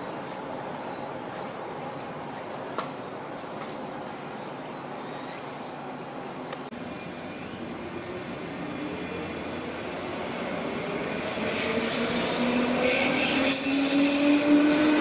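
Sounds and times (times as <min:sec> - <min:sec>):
electric train approaching: 0:06.8 - 0:15.0.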